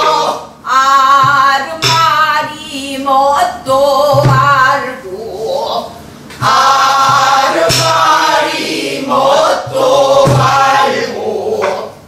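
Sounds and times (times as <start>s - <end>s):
barrel drum strokes: 0.8s - 2.9s, 3.9s - 4.9s, 6.3s - 12.0s.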